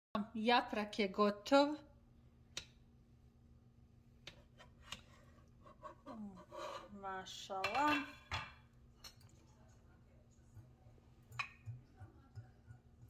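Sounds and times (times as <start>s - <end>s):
woman's voice: 0.2s - 1.9s, 6.1s - 8.1s.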